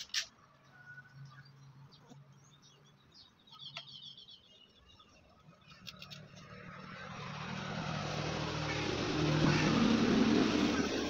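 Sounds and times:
high bird chirps: 0:00.7 - 0:05.2
motor vehicle approaching: 0:05.5 - 0:11.0.

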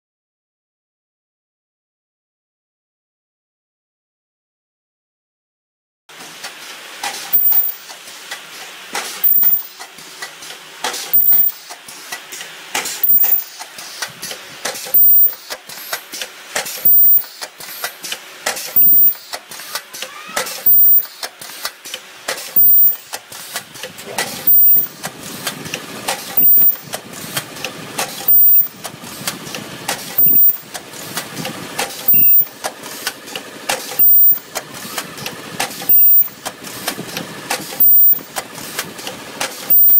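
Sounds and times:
steady mechanical noise: 0:06.1 - 0:39.9
ultrasonic welding bursts: 0:07.0 - 0:08.1, 0:08.8 - 0:19.8, 0:20.4 - 0:34.9, 0:35.6 - 0:38.9, 0:39.6 - 0:39.9.

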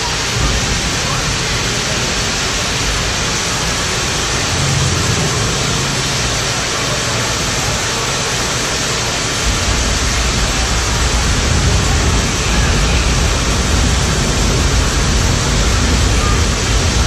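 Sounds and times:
pouring rain: 0:00.0 - 0:17.0
thunder rumble: 0:00.0 - 0:17.0
waterfall: 0:00.0 - 0:17.0.

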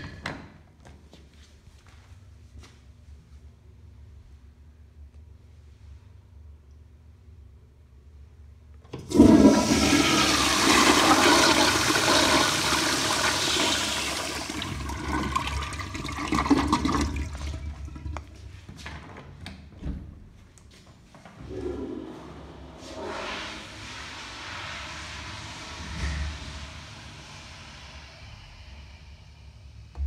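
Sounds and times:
toilet flushing: 0:08.9 - 0:18.7, 0:21.4 - 0:29.0.

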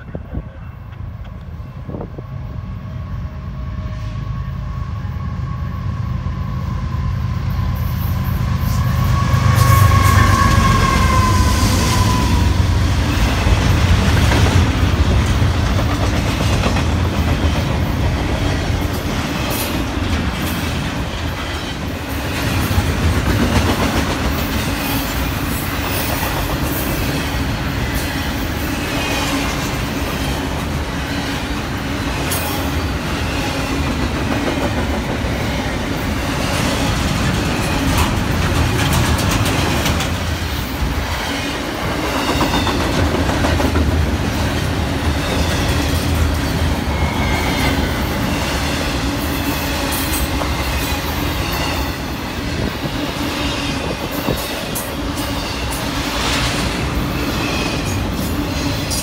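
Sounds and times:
train horn: 0:01.7 - 0:13.4
train wheels clacking on rails: 0:08.1 - 0:59.0.

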